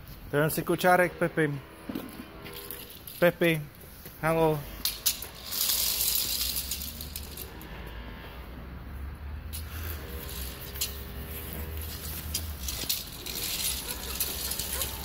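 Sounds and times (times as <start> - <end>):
toy stroller rattling on paving: 5.0 - 7.5, 9.6 - 15.0.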